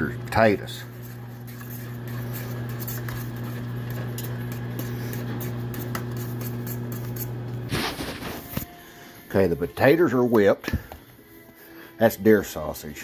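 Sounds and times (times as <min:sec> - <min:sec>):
low electrical hum: 0:00.0 - 0:09.6
metal spoon scraping a pot: 0:00.4 - 0:08.2.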